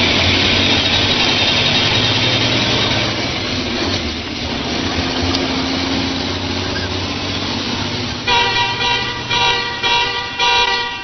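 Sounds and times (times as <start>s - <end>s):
truck engine running: 0.0s - 11.0s
truck horn blasts: 8.2s - 11.0s.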